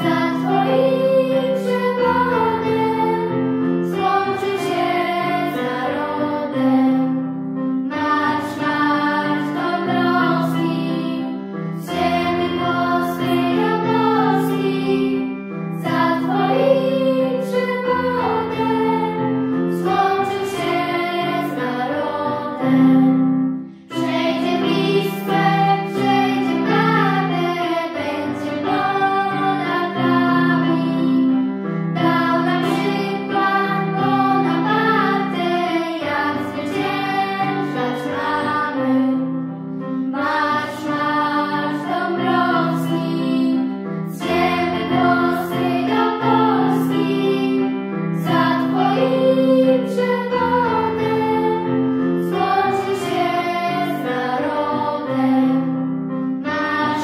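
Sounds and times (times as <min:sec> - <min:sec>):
children singing in unison: 0:00.0 - 0:07.2, 0:07.9 - 0:23.2, 0:23.9 - 0:39.4, 0:40.2 - 0:55.8, 0:56.4 - 0:57.0
instrumental accompaniment: 0:00.0 - 0:40.4.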